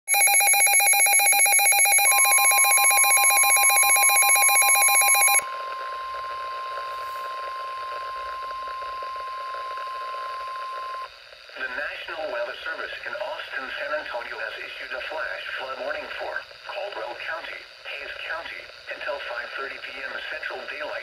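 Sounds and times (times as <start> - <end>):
warbling alert siren: 0.1 - 7.3
steady alarm tone: 0.1 - 11.1.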